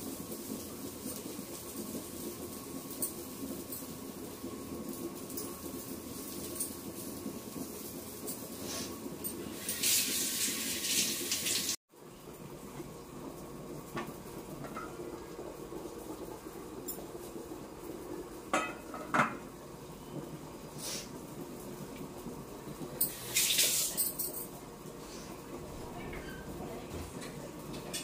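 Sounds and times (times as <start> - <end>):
water running: 0.0 - 19.8, 20.7 - 28.0
dishes and cutlery clinking: 18.5 - 19.4, 23.8 - 24.6.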